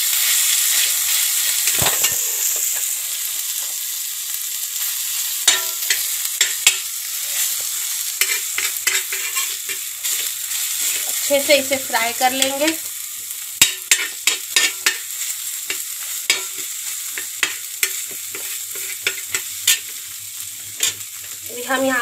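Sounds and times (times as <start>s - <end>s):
meat sizzling on a griddle: 0.0s - 22.0s
metal spatula scraping a pan: 5.5s - 12.6s, 13.6s - 20.0s, 20.6s - 21.4s.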